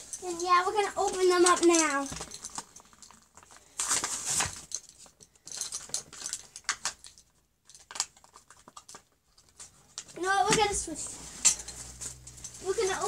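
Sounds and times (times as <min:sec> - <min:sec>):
foil packs crinkling: 0:00.2 - 0:05.0.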